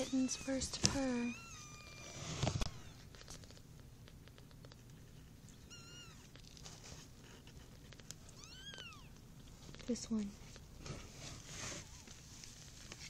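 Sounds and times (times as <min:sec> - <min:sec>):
kittens purring: 0:00.0 - 0:13.0.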